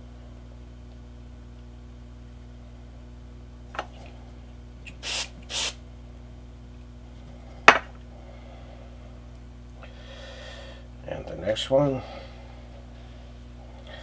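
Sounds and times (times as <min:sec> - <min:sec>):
aerosol can spritzes: 0:04.9 - 0:05.8.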